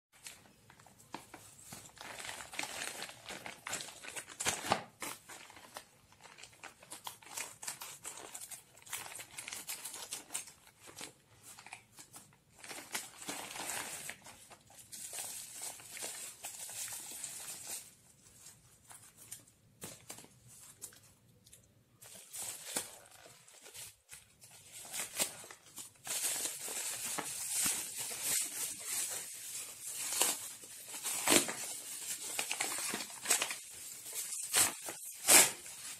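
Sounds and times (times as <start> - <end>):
plastic and bubble wrap crinkling: 0.2 - 35.9.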